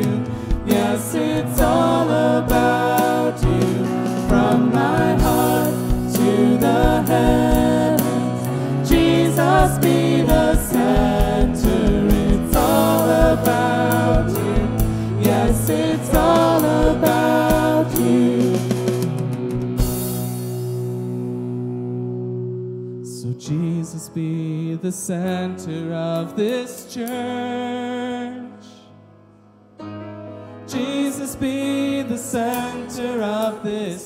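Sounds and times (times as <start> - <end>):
bass and keyboard chords: 0.0 - 26.4
drum beat: 1.6 - 20.0.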